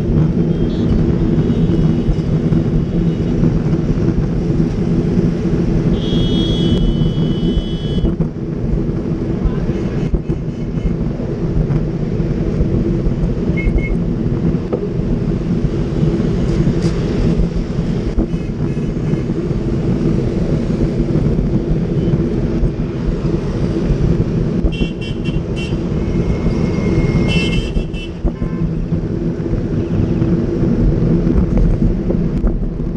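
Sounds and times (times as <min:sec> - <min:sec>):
road traffic rumble: 0:00.0 - 0:32.9
vehicle horns tooting: 0:06.0 - 0:08.1, 0:27.0 - 0:28.7.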